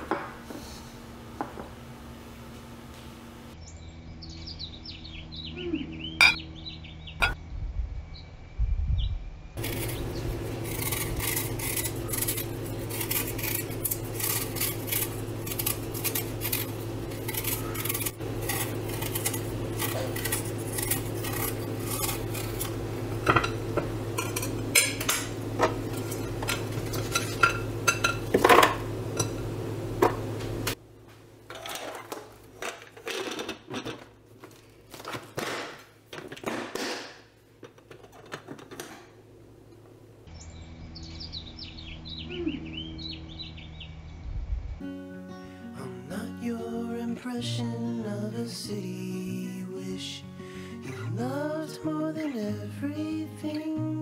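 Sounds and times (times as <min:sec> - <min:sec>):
steady low hum: 0:00.0 - 0:32.7, 0:37.2 - 0:49.5
knife peeling apple: 0:09.6 - 0:24.8.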